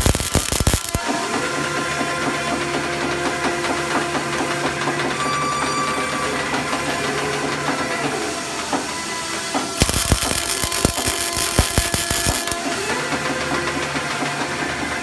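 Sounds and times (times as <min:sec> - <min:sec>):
held machine tones: 0:00.0 - 0:01.1, 0:09.8 - 0:12.8
forming machine whir and hiss: 0:00.0 - 0:15.0.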